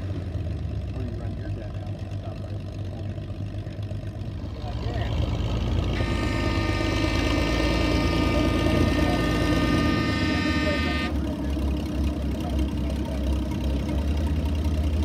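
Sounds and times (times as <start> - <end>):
tractor engine rumbling under load: 0.0 - 15.0
high steady whine: 6.0 - 11.2.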